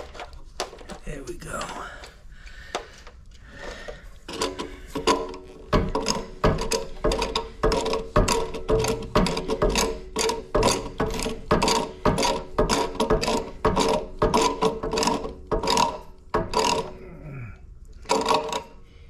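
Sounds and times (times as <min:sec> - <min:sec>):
ratcheting pipe cutter clicking: 0:04.2 - 0:17.0, 0:17.9 - 0:18.8.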